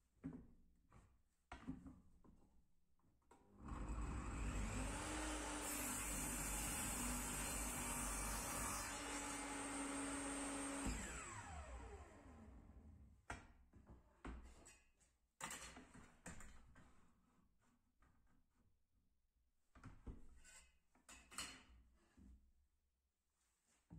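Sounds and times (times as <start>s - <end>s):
table saw cutting wood: 3.6s - 12.8s
saw blade winding down: 10.7s - 12.6s.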